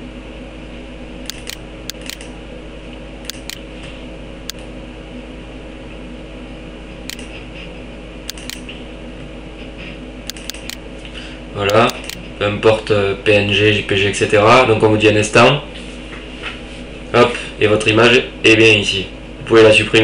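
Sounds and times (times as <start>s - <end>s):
electrical hum and hiss: 0.0s - 20.0s
computer mouse clicks: 1.3s - 2.3s, 3.3s - 3.6s, 8.3s - 8.6s, 10.3s - 10.8s, 11.7s - 12.2s.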